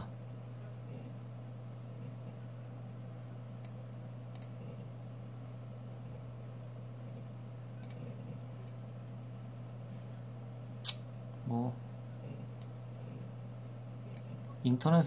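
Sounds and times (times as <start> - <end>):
low electrical hum: 0.0 - 15.0
sharp computer clicks: 3.6 - 4.6, 7.8 - 8.1.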